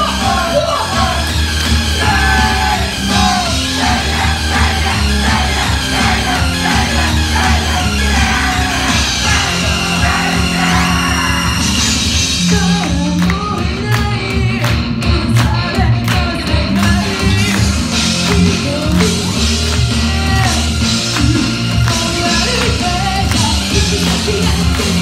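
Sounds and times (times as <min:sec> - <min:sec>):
live rock music: 0:00.0 - 0:25.0
person singing into microphone: 0:12.4 - 0:25.0.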